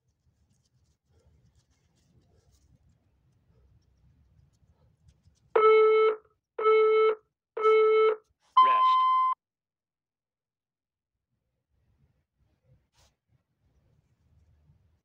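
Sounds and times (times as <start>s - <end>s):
longer higher-pitched beep: 5.6s - 9.4s.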